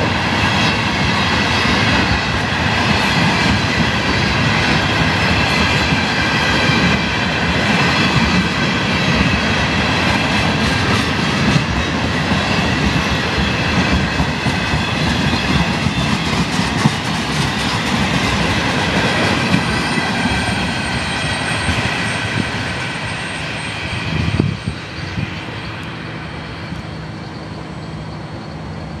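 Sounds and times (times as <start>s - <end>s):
train wheels rumbling on rail: 0.0s - 29.0s
high squeal: 19.2s - 29.0s.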